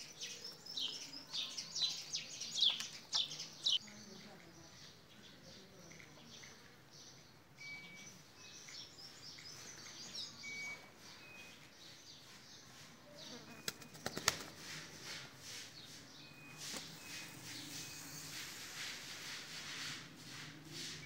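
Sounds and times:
small birds chirping: 0:00.0 - 0:20.3
pigeon wings flapping: 0:13.6 - 0:14.8.

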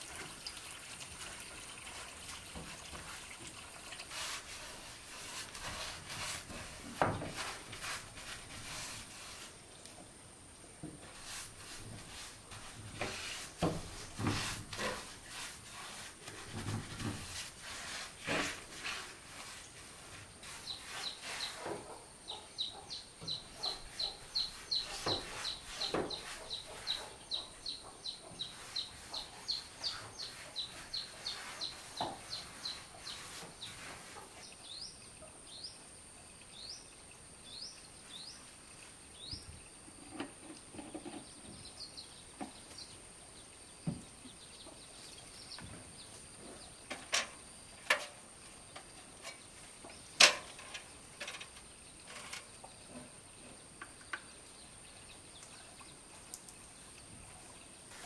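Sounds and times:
paintbrush scraping wooden boards: 0:04.0 - 0:09.7, 0:10.9 - 0:34.5
bird chirping: 0:20.6 - 0:33.8.

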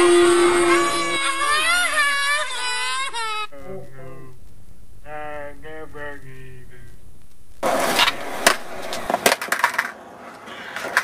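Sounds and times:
skateboard clacks: 0:07.6 - 0:11.0
skateboard rolling: 0:07.6 - 0:11.0.

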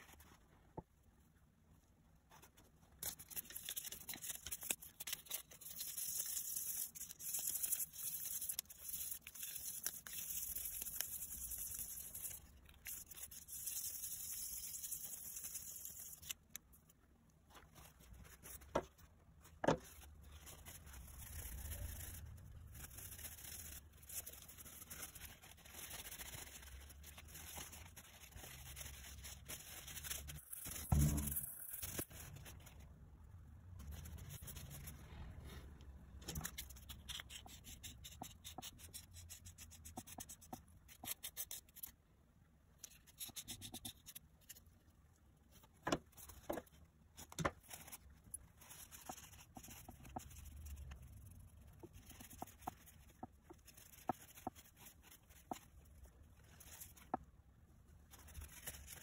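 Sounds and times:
dry scratchy rubbing: 0:17.5 - 0:32.9.

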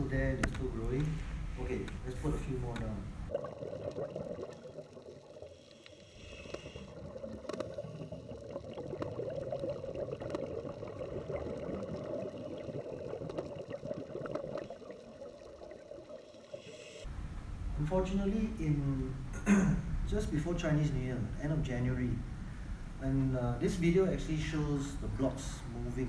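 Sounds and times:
underwater clicks: 0:00.2 - 0:01.2, 0:02.7 - 0:03.0.

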